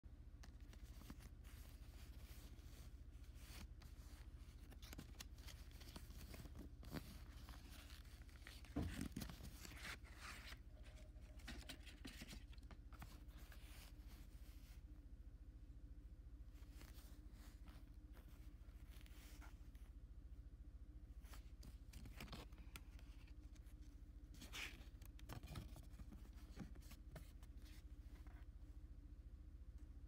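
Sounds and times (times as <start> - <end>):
cardboard box rustling: 3.4 - 13.9.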